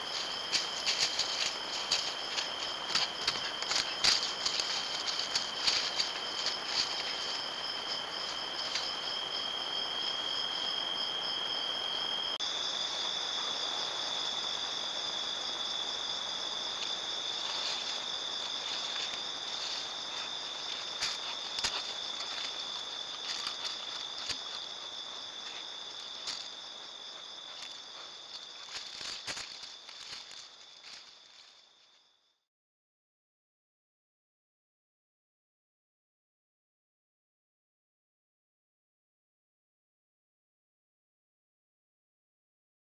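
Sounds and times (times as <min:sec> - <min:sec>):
rustles in dry leaves: 0:00.0 - 0:09.8, 0:16.3 - 0:31.8
crickets trilling: 0:00.0 - 0:32.3.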